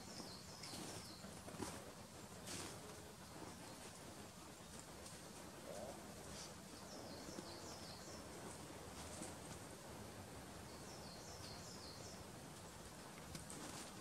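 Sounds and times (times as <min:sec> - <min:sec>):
songbird singing: 0:00.0 - 0:01.8, 0:05.6 - 0:08.9, 0:10.5 - 0:12.4.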